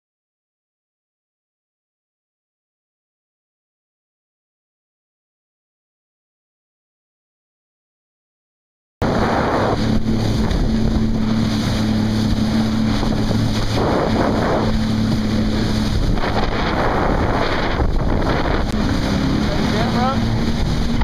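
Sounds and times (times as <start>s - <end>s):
jet ski engine: 9.0s - 21.0s
rushing spray: 9.0s - 21.0s
water splashing: 9.0s - 21.0s
wind buffeting microphone: 9.0s - 21.0s.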